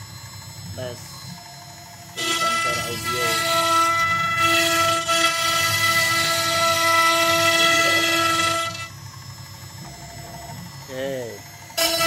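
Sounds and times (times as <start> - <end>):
router spindle whine: 0.0 - 12.0
bit cutting wood: 2.2 - 8.9, 11.8 - 12.0.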